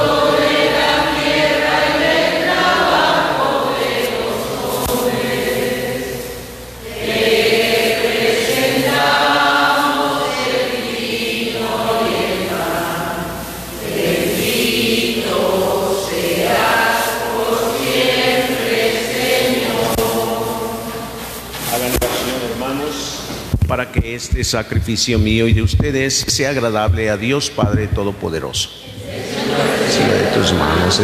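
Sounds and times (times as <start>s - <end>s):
choir singing a hymn: 0.0s - 21.5s, 28.8s - 31.0s.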